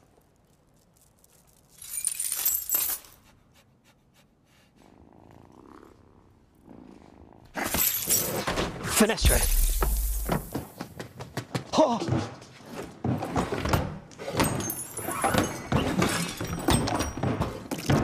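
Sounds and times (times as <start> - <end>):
jingle of jewellery or coins: 1.7 - 3.2, 7.6 - 8.4, 14.6 - 17.0
creature purring and snuffling: 3.4 - 9.6.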